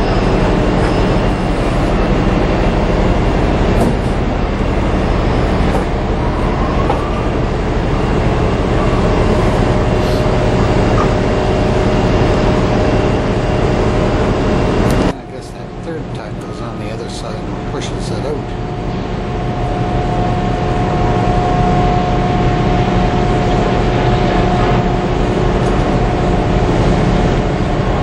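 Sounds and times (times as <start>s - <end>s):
ship rumbling with hiss: 0.0s - 10.6s.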